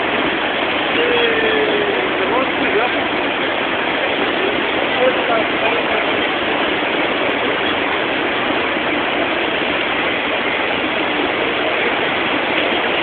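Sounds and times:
floodwater rushing: 0.0 - 13.0.

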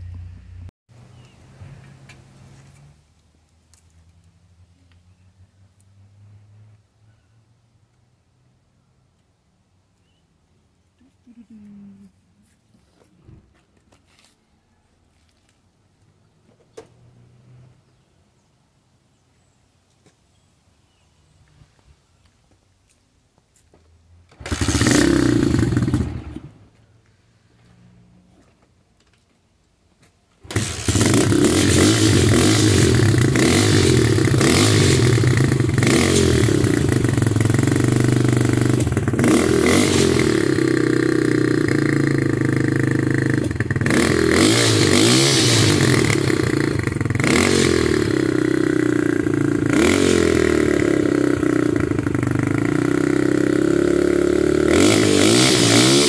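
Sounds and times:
dirt bike engine revving: 24.3 - 26.7, 30.4 - 56.0.

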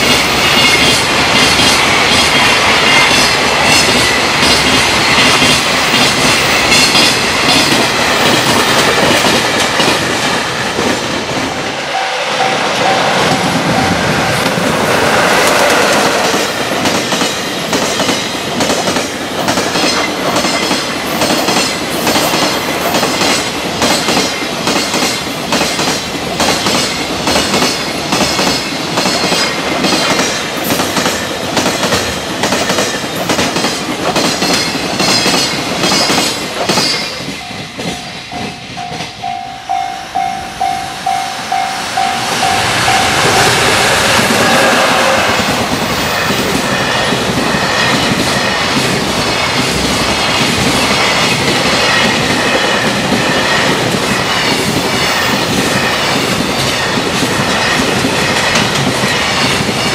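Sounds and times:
level-crossing warning bell: 0.0 - 14.7, 36.8 - 59.9
freight train wheels clattering: 0.0 - 59.9.

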